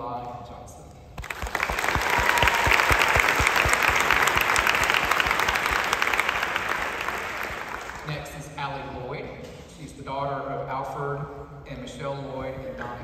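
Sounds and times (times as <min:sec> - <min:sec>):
audience applause: 0:01.2 - 0:08.1.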